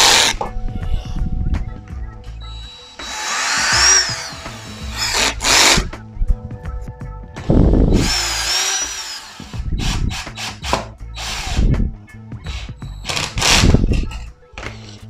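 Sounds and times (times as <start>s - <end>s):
cordless drill motor whine: 2.5s - 5.8s, 8.0s - 10.0s.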